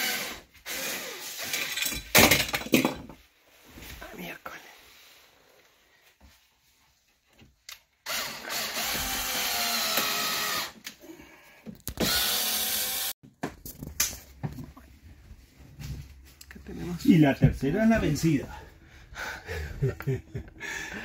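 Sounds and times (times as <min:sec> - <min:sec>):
cordless drill running: 0:00.0 - 0:01.5, 0:08.0 - 0:10.8, 0:12.0 - 0:13.2.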